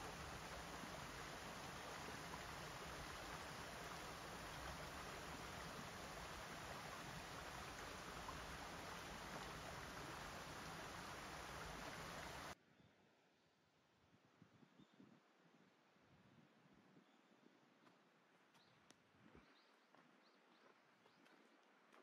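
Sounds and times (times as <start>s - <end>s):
stream rushing over weir: 0.0s - 12.6s.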